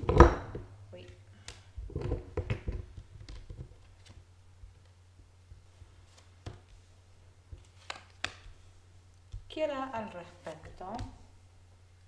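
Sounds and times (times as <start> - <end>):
low steady hum: 0.0 - 12.0
cards tapping and sliding on cloth: 2.6 - 6.9, 7.5 - 9.5, 10.4 - 11.2.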